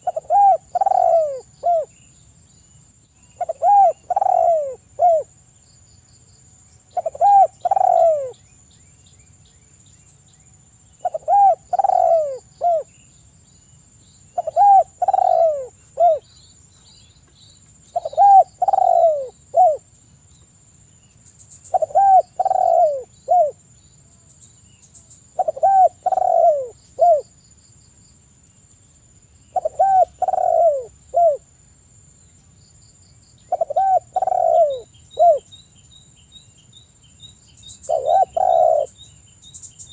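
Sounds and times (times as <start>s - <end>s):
dove cooing: 0.0s - 1.9s, 3.4s - 5.3s, 6.9s - 8.4s, 11.0s - 12.9s, 14.4s - 16.3s, 17.9s - 19.8s, 21.7s - 23.6s, 25.3s - 27.3s, 29.6s - 31.5s, 33.5s - 35.5s, 37.9s - 39.0s.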